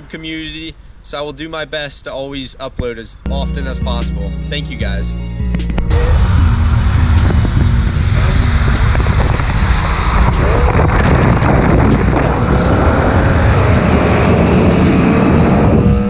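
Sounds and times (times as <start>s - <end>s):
car engine at full throttle: 4.5s - 16.0s
wind rushing: 5.6s - 16.0s.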